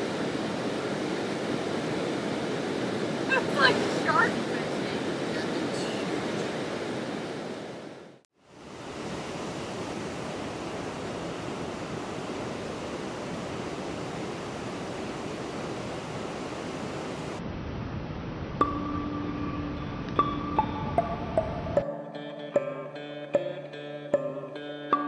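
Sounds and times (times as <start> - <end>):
water rushing through dam gates: 0.0 - 7.5.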